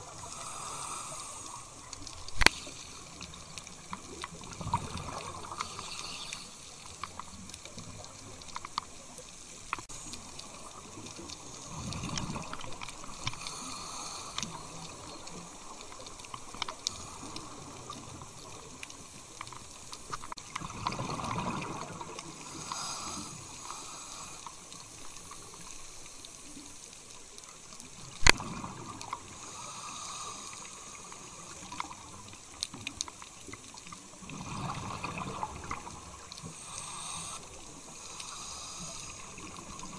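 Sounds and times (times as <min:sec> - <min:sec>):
crackle of faint clicks: 0:00.0 - 0:39.9
diver's exhaled bubbles gurgling: 0:01.8 - 0:05.9, 0:10.5 - 0:13.2, 0:20.3 - 0:23.0, 0:28.2 - 0:29.3, 0:34.2 - 0:36.5
sharp underwater click: 0:02.1 - 0:02.8, 0:28.2 - 0:28.5.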